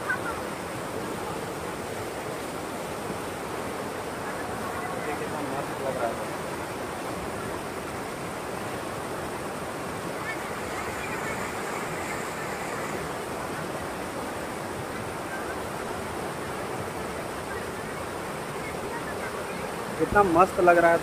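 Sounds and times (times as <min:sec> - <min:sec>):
river rapids rushing: 0:00.0 - 0:21.0.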